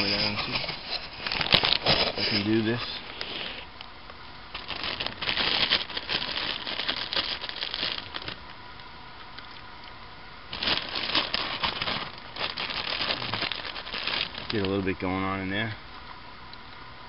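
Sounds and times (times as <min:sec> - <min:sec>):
plastic bag crinkling: 0:00.0 - 0:03.7, 0:04.5 - 0:08.5, 0:10.5 - 0:15.0.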